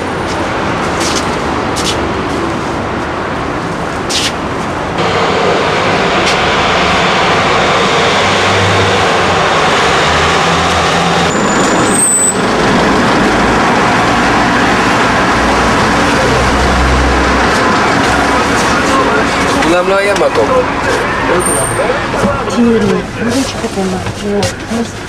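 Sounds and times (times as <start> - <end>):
minibus engine running: 0.0 - 25.0
street traffic: 0.0 - 25.0
brakes squealing: 5.0 - 25.0.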